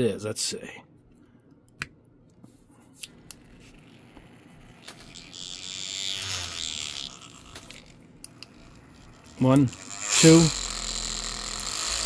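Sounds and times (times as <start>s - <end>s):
paint shaker motor buzzing: 3.3s - 12.0s.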